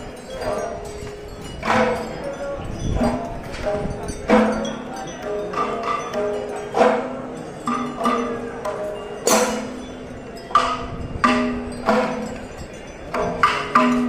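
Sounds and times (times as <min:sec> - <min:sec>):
drum strokes: 0:00.4 - 0:14.0
cymbal clashes: 0:03.7 - 0:12.5.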